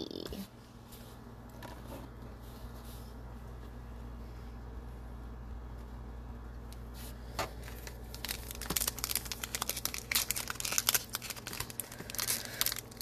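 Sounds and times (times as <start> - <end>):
foil pack crinkling and tearing: 7.5 - 13.0.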